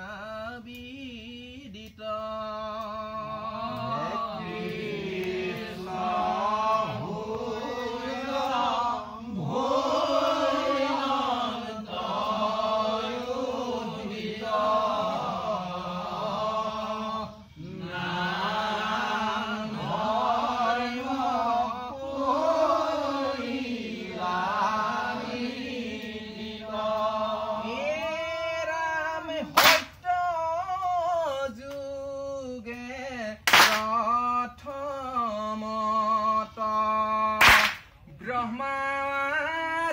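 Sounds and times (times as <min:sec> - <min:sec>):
men chanting: 0:00.0 - 0:39.9
hand claps: 0:04.7 - 0:05.7, 0:29.5 - 0:30.1, 0:33.4 - 0:34.0, 0:37.4 - 0:38.1.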